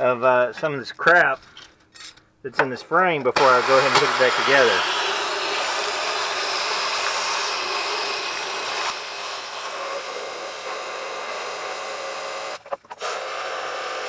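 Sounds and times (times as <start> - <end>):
hose spray hissing: 3.4 - 10.2.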